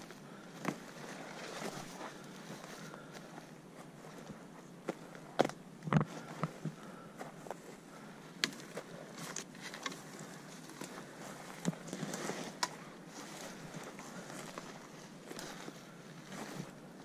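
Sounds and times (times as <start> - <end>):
rustling vegetation: 0.0 - 17.0
twigs snapping underfoot: 8.4 - 12.8.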